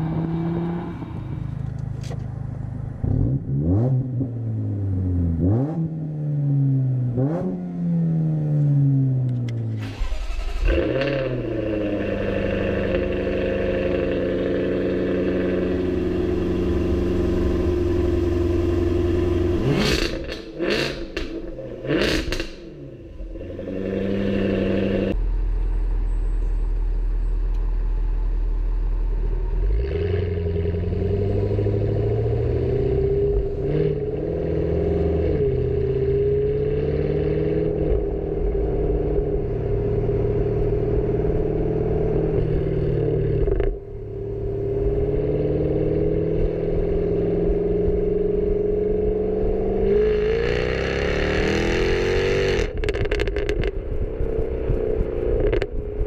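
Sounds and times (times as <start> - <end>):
car engine revving: 2.8 - 25.3, 29.3 - 56.0
exhaust pops and crackles: 52.6 - 56.0.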